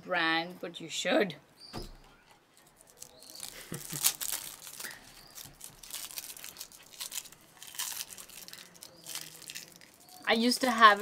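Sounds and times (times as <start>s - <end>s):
packaging crinkling and rustling: 2.6s - 11.0s.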